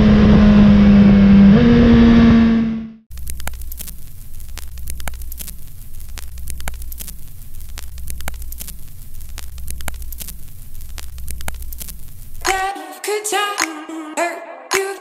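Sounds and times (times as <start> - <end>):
sharp crackles and clicks: 3.1 - 12.6
static hiss: 3.1 - 12.6.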